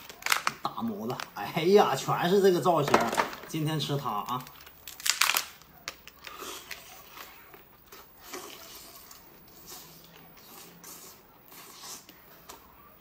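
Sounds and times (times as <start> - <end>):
person chewing: 6.0 - 12.8.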